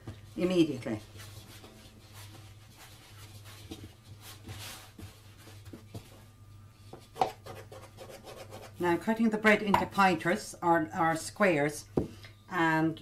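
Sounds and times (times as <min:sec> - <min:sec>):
hands kneading dough: 0:00.0 - 0:08.9
low steady hum: 0:00.0 - 0:13.0.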